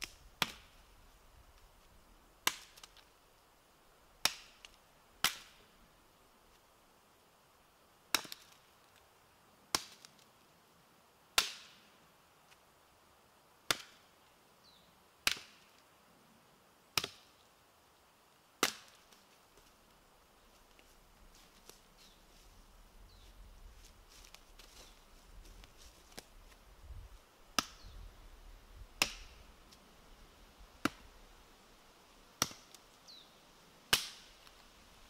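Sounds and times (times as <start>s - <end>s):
hatchet chopping wood: 0.4s - 0.7s, 2.4s - 3.0s, 4.2s - 5.6s, 8.1s - 8.6s, 9.7s - 10.1s, 11.4s - 11.8s, 13.7s - 14.0s, 15.2s - 15.7s, 17.0s - 17.3s, 18.6s - 19.0s, 27.6s - 27.8s, 29.0s - 29.4s, 30.8s - 31.0s, 32.4s - 32.8s, 33.9s - 34.3s
footsteps on dry leaves: 20.4s - 27.3s.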